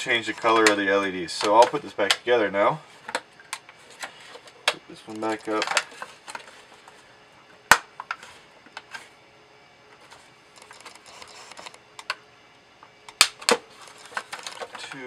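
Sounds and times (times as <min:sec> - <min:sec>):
plastic rubbing: 0:10.1 - 0:11.8, 0:13.5 - 0:15.0.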